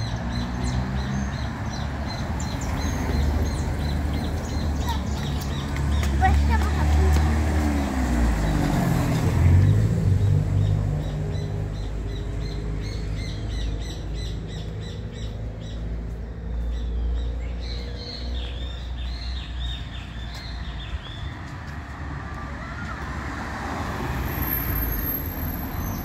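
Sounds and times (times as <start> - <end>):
birds chirping: 0.0 - 22.2
car driving past: 5.5 - 26.0.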